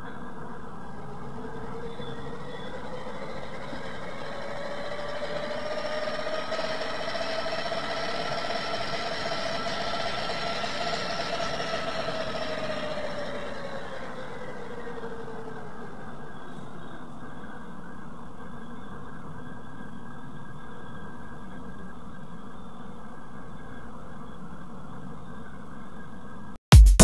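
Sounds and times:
cooling fan whining: 0:00.0 - 0:17.4.

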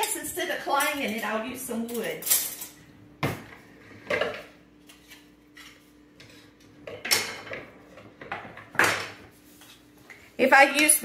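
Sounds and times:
kitchen utensils clattering: 0:00.0 - 0:09.3.

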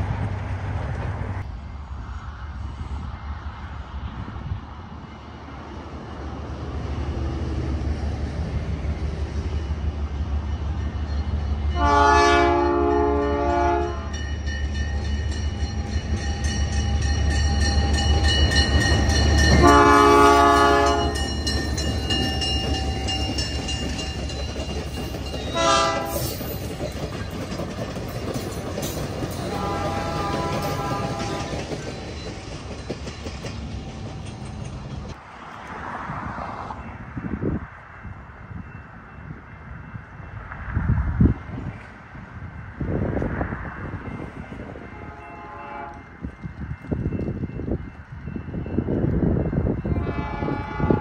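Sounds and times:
diesel locomotive engine rumbling: 0:00.0 - 0:51.0
train horn blasts: 0:11.7 - 0:14.2, 0:19.5 - 0:21.4, 0:25.5 - 0:26.4, 0:29.4 - 0:31.7, 0:44.8 - 0:46.2, 0:49.8 - 0:51.0
wheels clacking over rail joints: 0:14.1 - 0:35.2.

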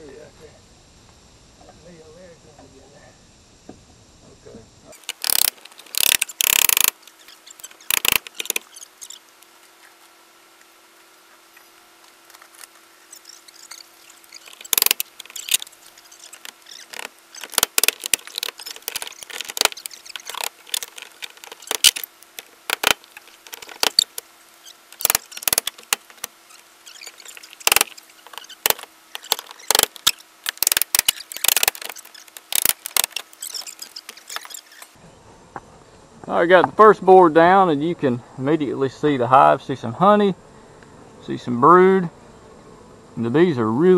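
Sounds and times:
wooden board cracking and creaking: 0:05.0 - 0:09.2, 0:12.0 - 0:35.0.

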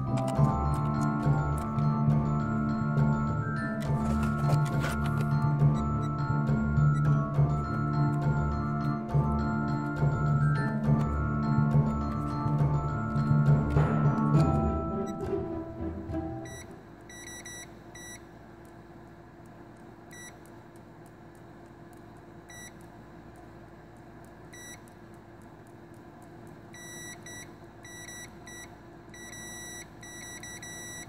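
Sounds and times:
continuity tester beeps: 0:00.0 - 0:15.3, 0:16.4 - 0:18.2, 0:20.1 - 0:20.4, 0:22.5 - 0:22.8, 0:24.5 - 0:24.9, 0:26.7 - 0:31.0.

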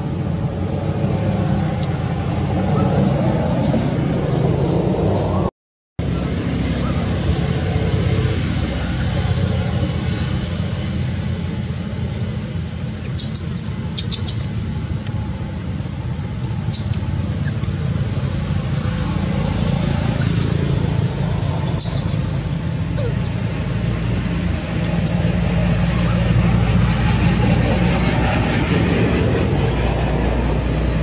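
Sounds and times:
low outdoor rumble: 0:00.0 - 0:31.0
short high squeaks: 0:13.0 - 0:15.1, 0:16.7 - 0:17.8, 0:21.7 - 0:25.4.

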